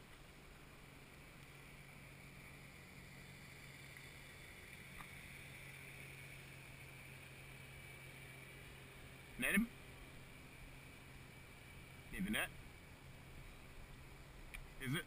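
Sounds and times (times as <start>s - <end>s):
faint hum and hiss: 0.0s - 15.0s.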